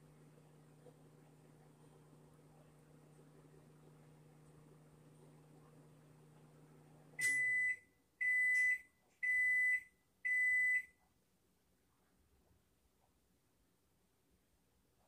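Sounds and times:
microwave oven humming: 0:00.0 - 0:10.8
high microwave beeps: 0:07.2 - 0:11.0.

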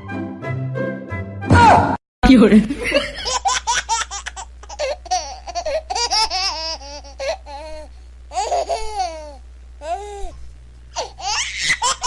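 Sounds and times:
child laughing: 0:03.0 - 0:09.4, 0:11.0 - 0:12.0.

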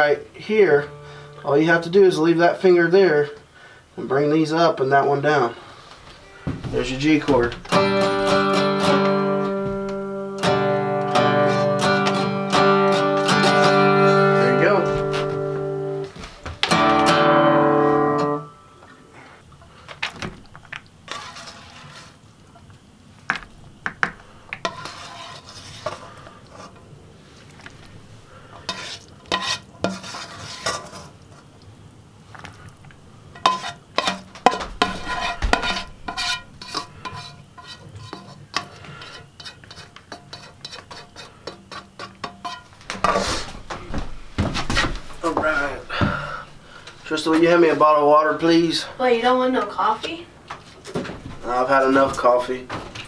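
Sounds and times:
acoustic guitar chord strummed: 0:00.0 - 0:01.6, 0:06.2 - 0:19.3
spoon scraping metal pan: 0:21.1 - 0:22.2, 0:24.6 - 0:26.9, 0:28.4 - 0:31.4, 0:33.3 - 0:43.5.

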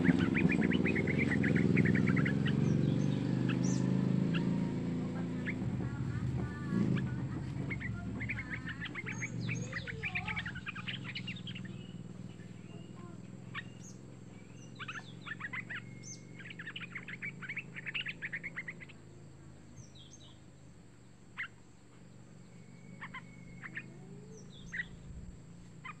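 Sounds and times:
bird sharp call notes: 0:00.0 - 0:19.1, 0:22.5 - 0:25.1
bird chattering: 0:00.0 - 0:26.0.

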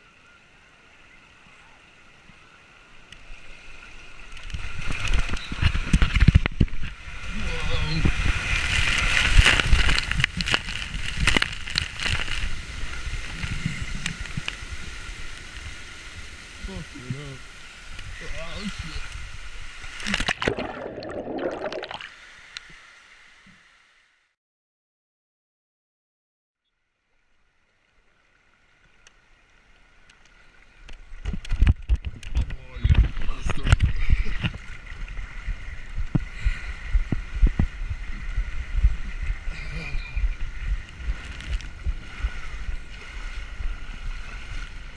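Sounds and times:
water rushing down a slide: 0:04.4 - 0:17.4, 0:18.0 - 0:22.8
faint rushing hiss: 0:22.0 - 0:24.2.

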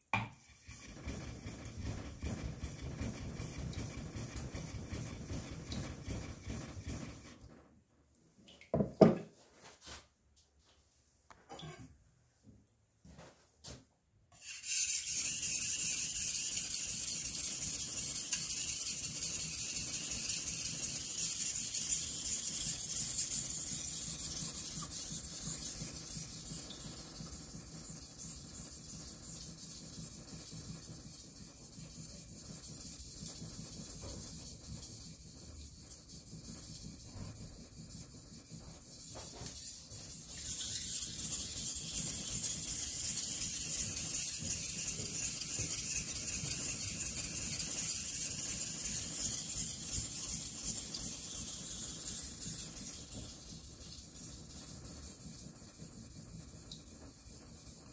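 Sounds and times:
knife scraping on whetstone: 0:14.4 - 0:25.7.

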